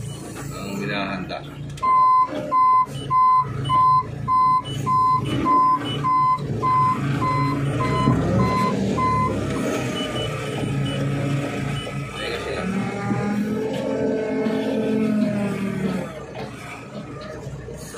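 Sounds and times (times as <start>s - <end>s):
forklift engine running: 0.0s - 17.9s
reverse alarm beeping: 1.8s - 12.0s.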